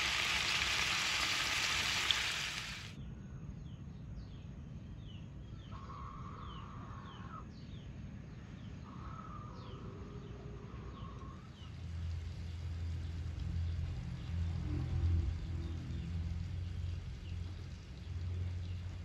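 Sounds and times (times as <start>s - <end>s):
pan simmering: 0.0s - 2.9s
long level bird calls: 8.4s - 11.8s.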